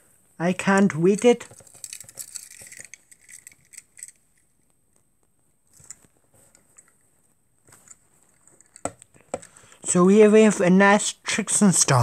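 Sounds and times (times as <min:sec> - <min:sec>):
toy car clicks and rustles: 0:00.8 - 0:04.6, 0:07.8 - 0:09.6.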